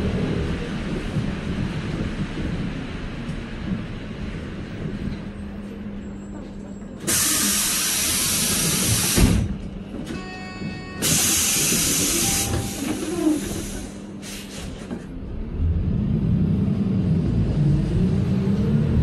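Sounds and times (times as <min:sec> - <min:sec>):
bus engine rumble: 0:00.0 - 0:19.0
bus air system hissing: 0:07.0 - 0:09.6, 0:11.0 - 0:15.0.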